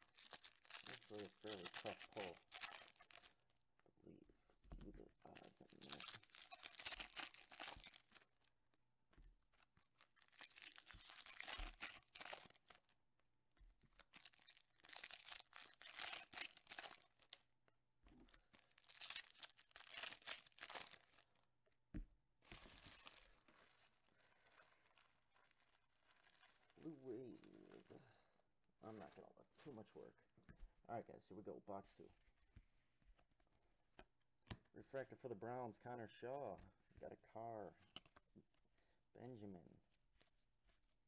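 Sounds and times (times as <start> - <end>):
foil wrapper tearing and crinkling: 0.0 - 3.4, 5.6 - 8.3, 10.0 - 12.9, 14.0 - 17.4, 18.3 - 21.4, 22.5 - 26.8.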